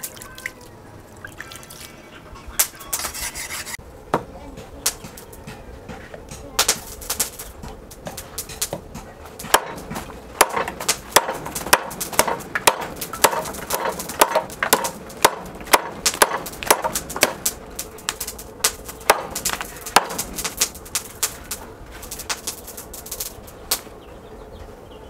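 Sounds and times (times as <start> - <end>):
knife chopping sugarcane: 4.9 - 21.5.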